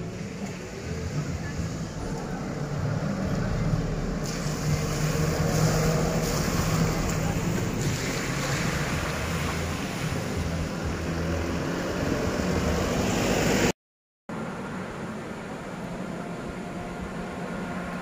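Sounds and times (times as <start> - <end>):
car engines running: 0.0 - 13.7
tyres passing: 0.0 - 13.7.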